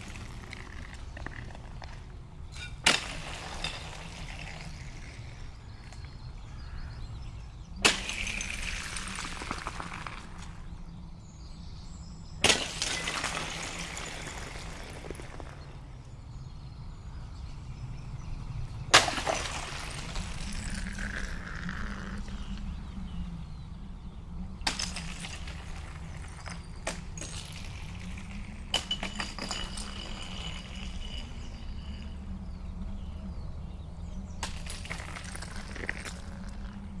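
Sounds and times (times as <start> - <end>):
sharp ringing clinks: 28.8 - 32.3.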